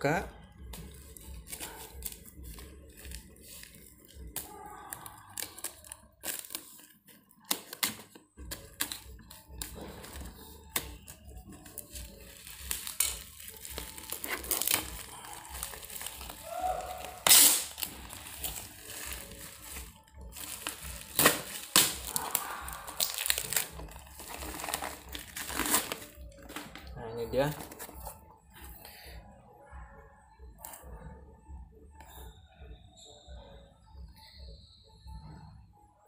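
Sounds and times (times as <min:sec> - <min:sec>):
plastic crinkling and crackling: 0:00.5 - 0:28.7
scissors cutting plastic wrapping: 0:00.7 - 0:28.2.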